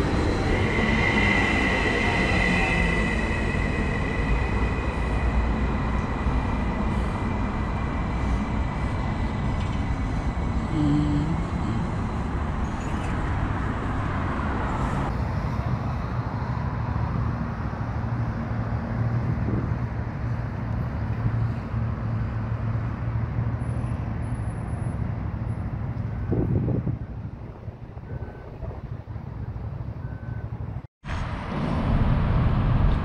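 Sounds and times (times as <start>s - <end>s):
electric train humming: 0.0s - 15.2s.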